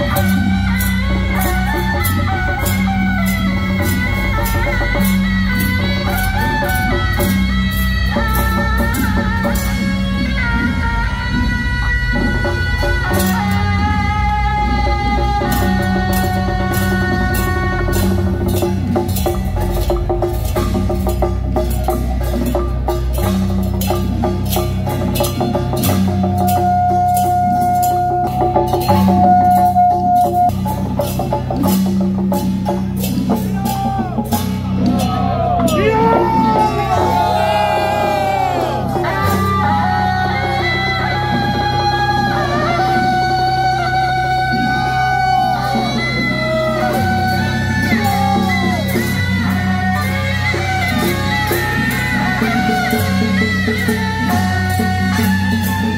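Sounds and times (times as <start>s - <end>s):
fast percussion: 0.0s - 55.9s
wailing melody with sliding pitches: 34.9s - 44.0s.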